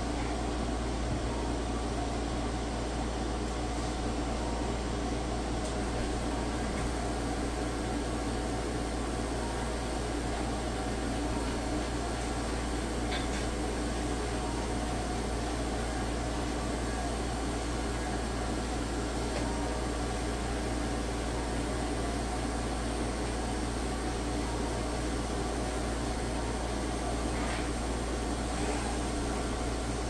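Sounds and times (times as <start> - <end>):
electric grooming machine whirring: 25.1 - 30.0.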